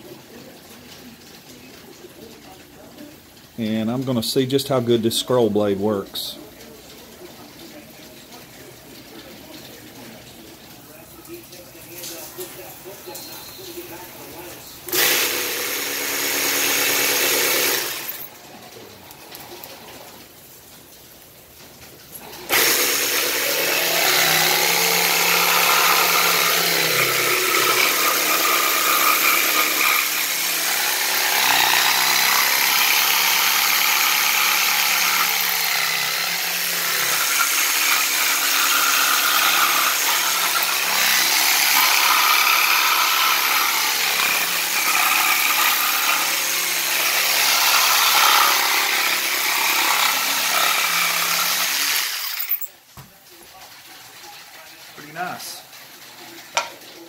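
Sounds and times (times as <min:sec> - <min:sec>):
jigsaw cutting wood: 0:14.9 - 0:18.3, 0:22.2 - 0:52.5.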